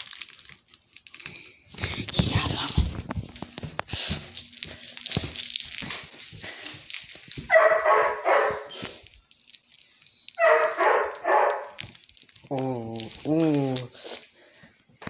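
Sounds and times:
puppy barking: 7.5s - 8.8s, 10.4s - 11.8s.

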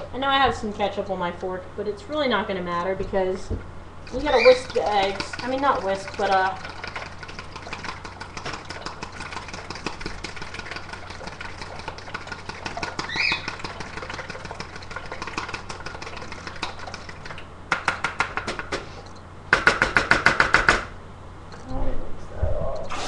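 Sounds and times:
fork beating eggs in bowl: 4.0s - 20.8s.

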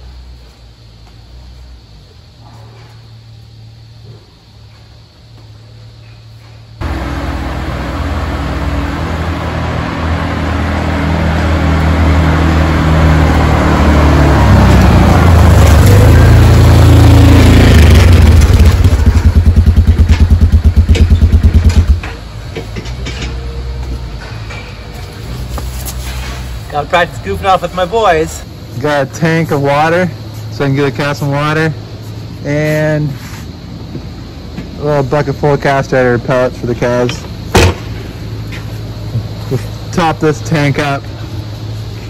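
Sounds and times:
quad bike engine: 6.8s - 22.2s.

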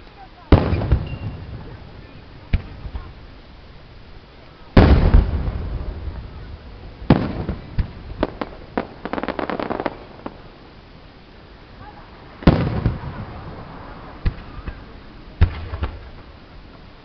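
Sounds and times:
firework booms with rolling echo: 0.5s - 16.8s
small firework pops: 2.5s - 3.2s, 7.1s - 10.4s, 12.4s - 13.2s, 14.2s - 16.8s.

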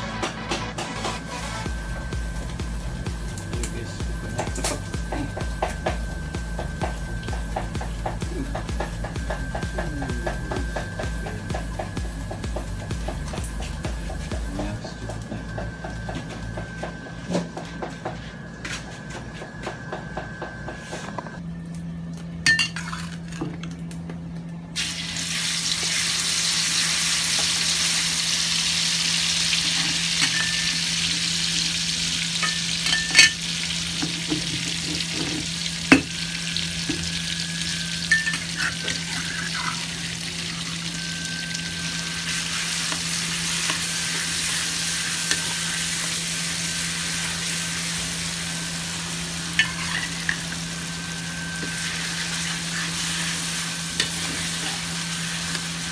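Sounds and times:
steady low hum: 0.0s - 25.5s
paste sizzling in hot oil: 24.8s - 55.9s
spatula scraping a wok: 38.4s - 39.9s.

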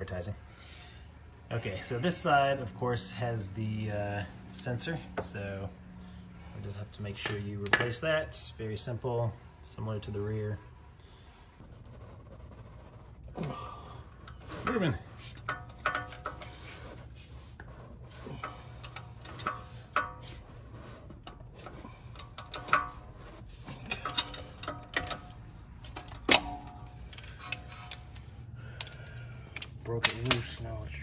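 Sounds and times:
screwdriver scraping metal: 14.1s - 28.9s.

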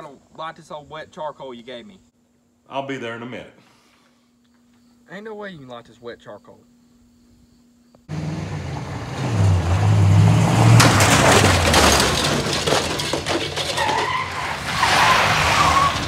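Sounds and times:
tires skidding on gravel: 8.1s - 16.0s
truck engine revving: 8.1s - 16.0s.

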